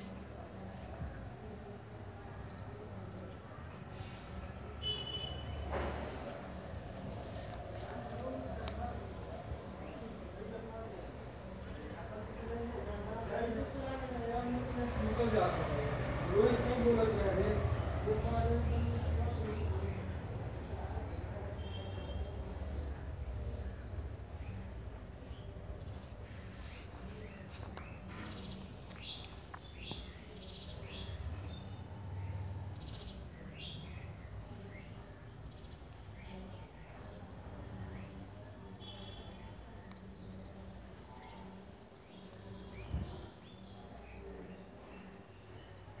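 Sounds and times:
insect chirping: 0:00.0 - 0:08.0, 0:18.8 - 0:45.9
thump: 0:05.6 - 0:06.3.

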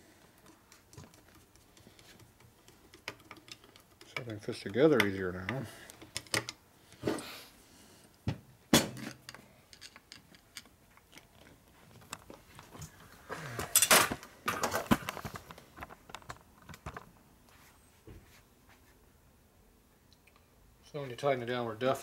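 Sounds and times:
small metal parts clicking: 0:09.3 - 0:11.3.

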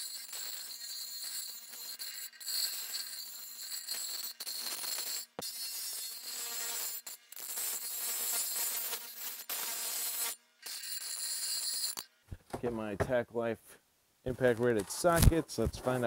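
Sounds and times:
grinder wheel grinding metal: 0:00.0 - 0:12.8.

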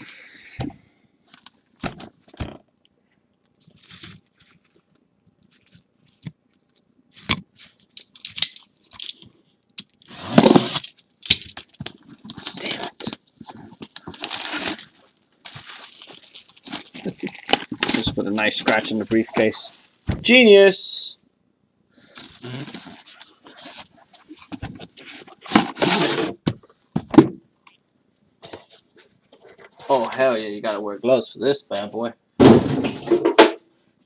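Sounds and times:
plastic shrink wrap crinkling: 0:10.0 - 0:20.0.

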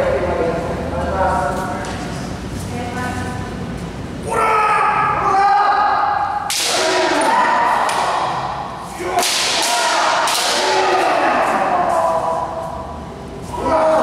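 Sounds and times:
fencers shouting: 0:04.3 - 0:12.9, 0:13.5 - 0:14.0
bamboo swords striking armour: 0:06.5 - 0:08.3, 0:09.0 - 0:11.2.

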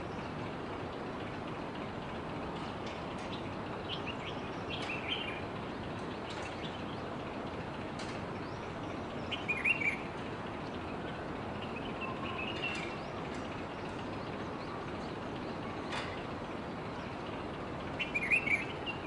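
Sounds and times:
steady background hiss: 0:00.0 - 0:19.0
bulbuls chirping: 0:03.3 - 0:07.3, 0:08.3 - 0:19.0.

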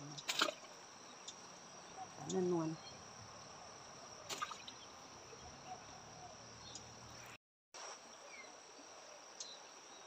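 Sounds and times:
crickets trilling: 0:00.0 - 0:10.0
faint outdoor hiss: 0:00.0 - 0:10.0.

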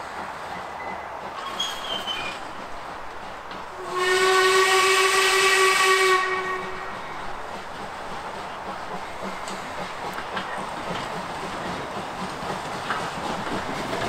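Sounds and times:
steam locomotive whistle: 0:03.8 - 0:07.0.

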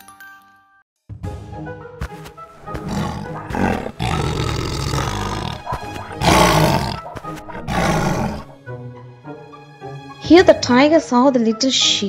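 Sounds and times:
background music: 0:00.0 - 0:12.0
tiger roaring: 0:02.6 - 0:08.6.

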